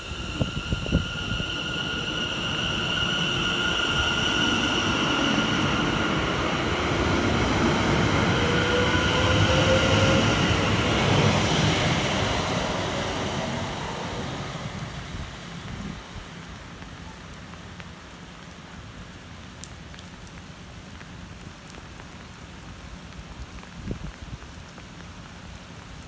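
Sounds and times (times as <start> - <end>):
train wheels on rails: 0.0 - 16.1
train high whine: 0.0 - 16.3
train low whine rising: 0.0 - 16.5.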